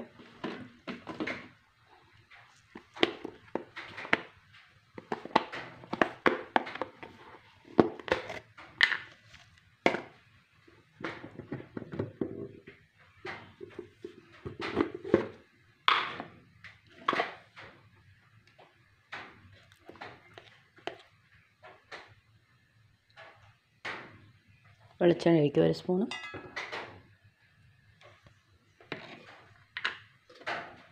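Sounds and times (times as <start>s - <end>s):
pans and utensils clattering: 26.1s - 27.0s.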